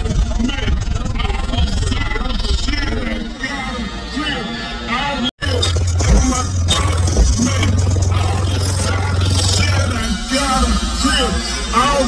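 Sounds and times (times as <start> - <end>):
deep bass note from subwoofers: 5.4 - 11.4.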